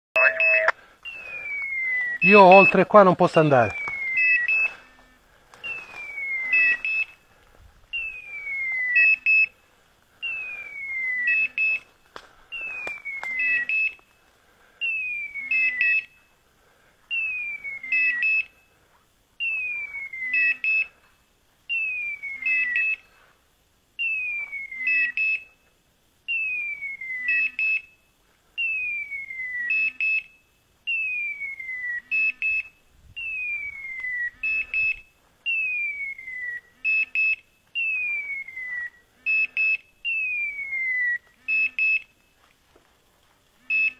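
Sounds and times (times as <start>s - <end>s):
quick electronic beeps: 0.2s - 4.8s
falling whistle-like tone: 5.6s - 7.0s, 7.9s - 9.5s, 10.3s - 11.8s, 12.6s - 13.9s, 14.8s - 16.1s, 17.1s - 18.4s, 19.4s - 20.8s, 21.7s - 23.0s, 24.0s - 25.3s, 26.3s - 27.6s, 28.6s - 30.1s, 30.9s - 32.6s, 33.2s - 42.0s.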